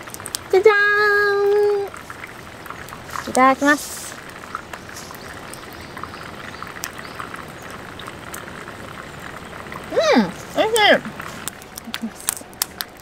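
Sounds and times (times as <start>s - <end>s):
wood fire crackling: 0.0s - 13.0s.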